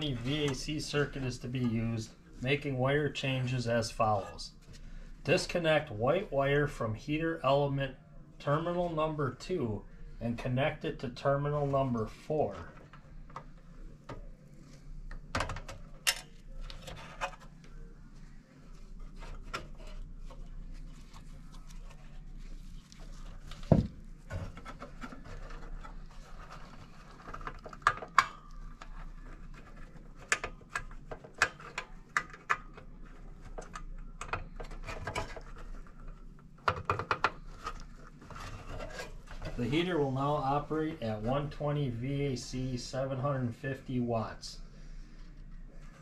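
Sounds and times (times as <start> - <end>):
faint steady hum: 0.0 - 46.0
wires handled with clicks and rubs: 12.3 - 39.9.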